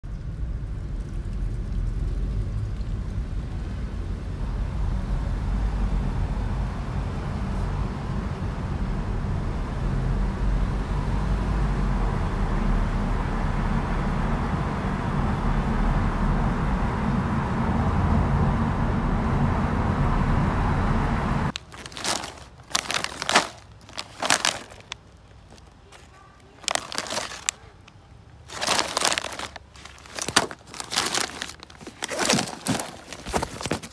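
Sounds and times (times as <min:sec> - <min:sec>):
car cabin road rumble: 0:00.0 - 0:33.9
plastic pouch crinkling: 0:21.5 - 0:33.9.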